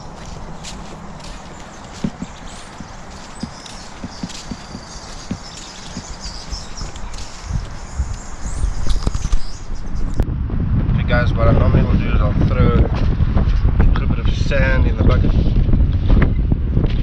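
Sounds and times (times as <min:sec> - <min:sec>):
footsteps on wet sand: 0:00.0 - 0:10.2, 0:12.6 - 0:14.8.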